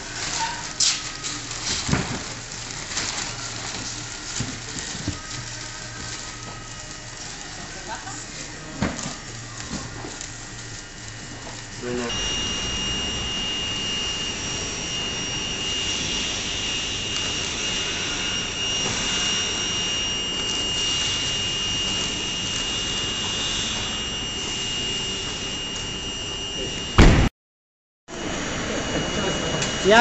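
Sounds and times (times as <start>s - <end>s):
mechanical whir with high whine: 8.8s - 27.3s, 28.1s - 30.0s.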